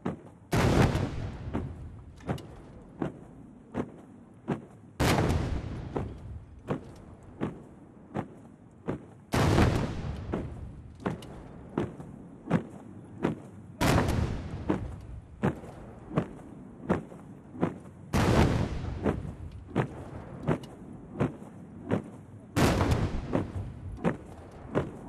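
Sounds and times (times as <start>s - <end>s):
boots striking in unison: 0.0s - 25.0s
artillery salvo booms: 0.5s - 2.1s, 5.0s - 6.6s, 9.3s - 11.1s, 13.8s - 15.3s, 18.1s - 20.2s, 22.6s - 25.0s.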